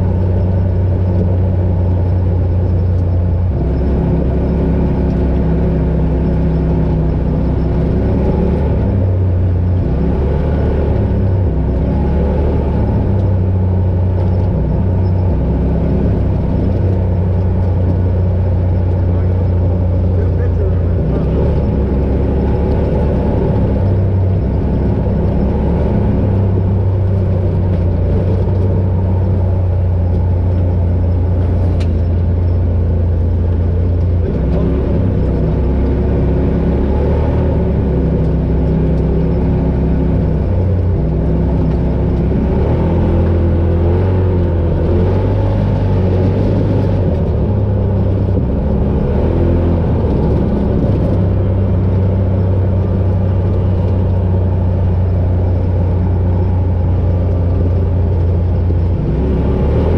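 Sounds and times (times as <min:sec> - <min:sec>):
off-road vehicle engine running: 0:00.0 - 0:59.9.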